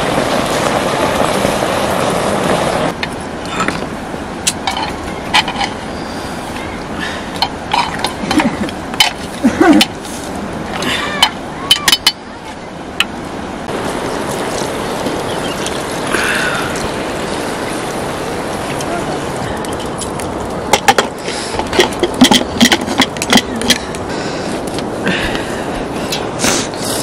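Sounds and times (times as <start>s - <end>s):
metal clanks and knocks: 20.7s - 23.8s.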